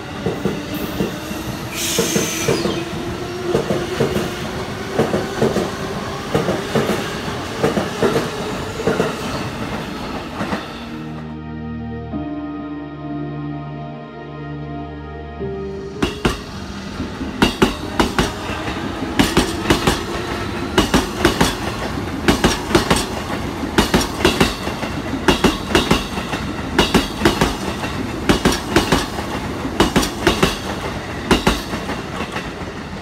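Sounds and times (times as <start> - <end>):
train rumble: 15.9 - 33.0
train wheels clacking over rail joints: 17.2 - 32.8.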